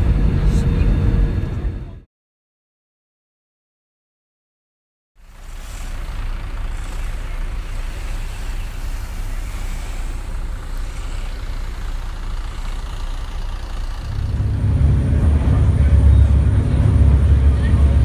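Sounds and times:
surf breaking on sand: 5.2s - 14.2s.

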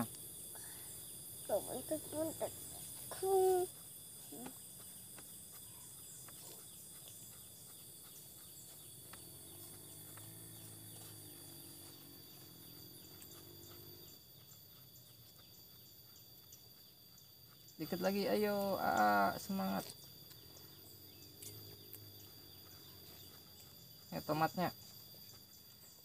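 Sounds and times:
high-pitched insect chorus: 0.0s - 26.0s.

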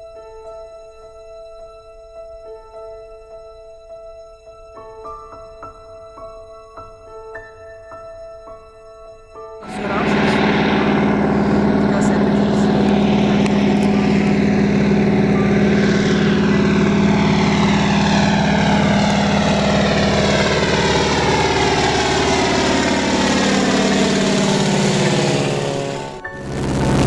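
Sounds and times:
propeller aircraft engine droning: 0.0s - 27.0s
falling whooshing sweep: 9.6s - 27.0s.

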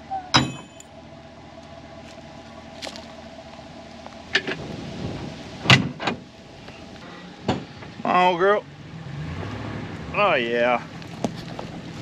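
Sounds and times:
metal hitch parts clanking: 0.1s - 1.0s, 4.0s - 4.7s, 5.6s - 8.4s.

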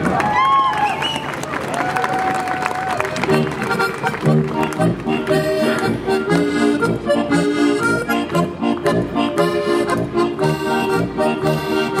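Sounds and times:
accordion folk dance music: 3.1s - 12.0s.

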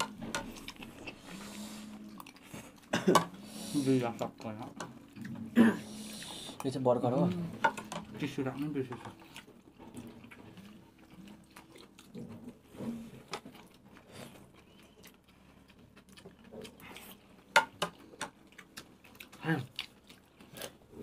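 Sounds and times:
chewing and mouth-smacking: 0.0s - 2.9s, 8.6s - 21.0s.

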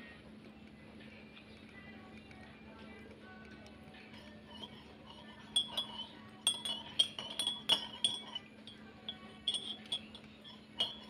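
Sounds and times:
ceramic tableware clinking: 4.2s - 11.0s.

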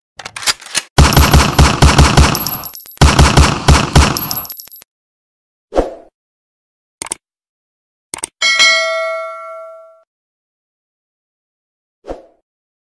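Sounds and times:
rapid pistol gunfire: 1.0s - 4.5s.

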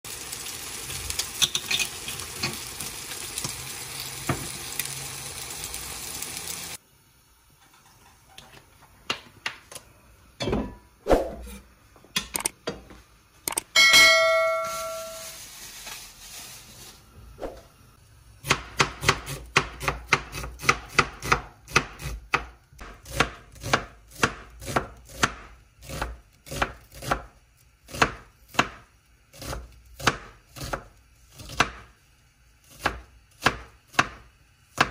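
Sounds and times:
eggs sizzling in a frying pan: 0.0s - 11.0s, 14.8s - 34.9s
short ringing chime: 13.8s - 15.4s
knife chopping onion on board: 18.4s - 31.9s, 32.6s - 34.9s.

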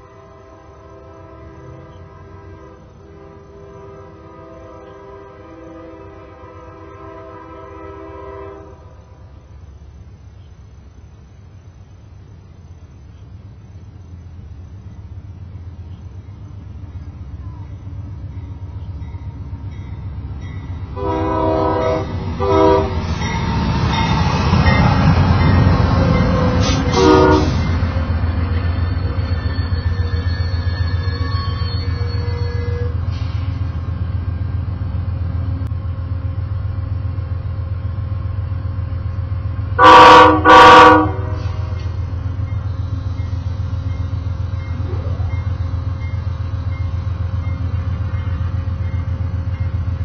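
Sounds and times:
locomotive air horn: 0.0s - 9.0s, 21.0s - 23.1s, 26.2s - 27.8s, 30.8s - 33.4s, 39.8s - 42.0s
train engine and wheels rumbling: 0.0s - 50.0s.

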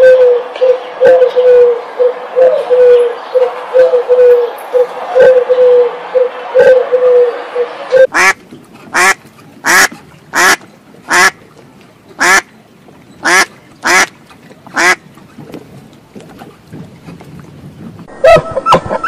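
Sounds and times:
duck quacking: 8.0s - 11.4s, 12.2s - 12.5s, 13.2s - 14.1s, 14.7s - 15.0s.

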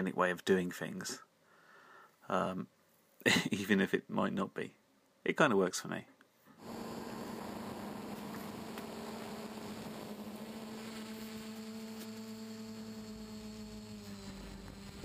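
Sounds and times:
quadcopter motors humming: 6.6s - 15.0s.

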